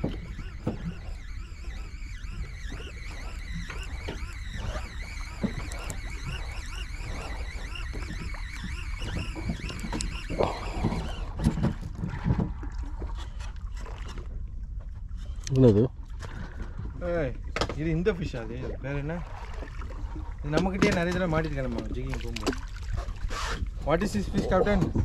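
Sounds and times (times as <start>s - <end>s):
fishing reel gears whirring: 0.0s - 11.9s
wind and boat rumble: 0.0s - 25.0s.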